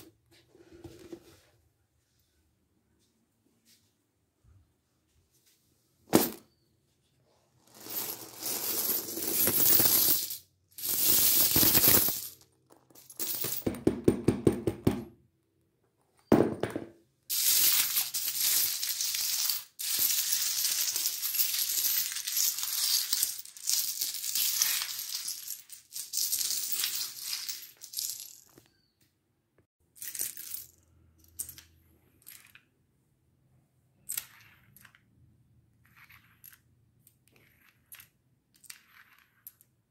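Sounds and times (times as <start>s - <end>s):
coins clattering on wooden floor: 6.1s - 6.6s, 7.6s - 14.6s, 16.3s - 28.9s, 30.0s - 32.6s, 34.0s - 35.0s, 35.8s - 39.8s.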